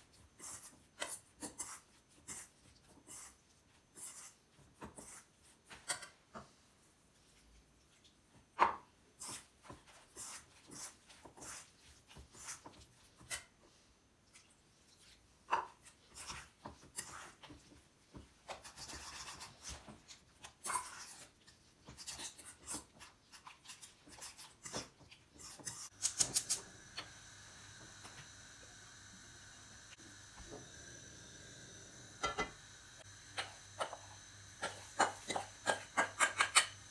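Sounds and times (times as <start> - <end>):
fork scraping a metal bowl: 18.5 - 19.8, 34.6 - 36.9.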